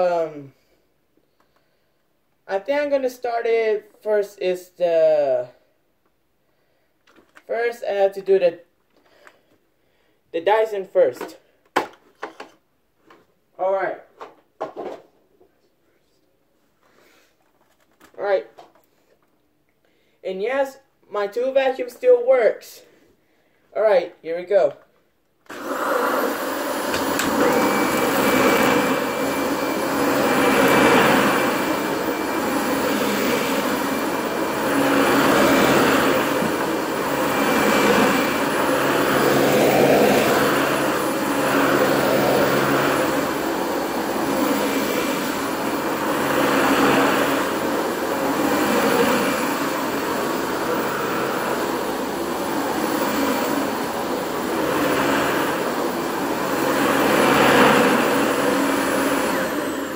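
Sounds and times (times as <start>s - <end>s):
vacuum cleaner running: 25.5s - 59.9s.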